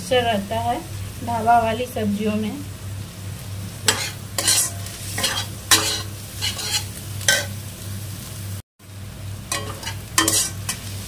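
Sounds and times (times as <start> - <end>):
food sizzling in oil: 0.0 - 11.0
spatula scraping a pan: 3.8 - 7.5, 9.5 - 11.0.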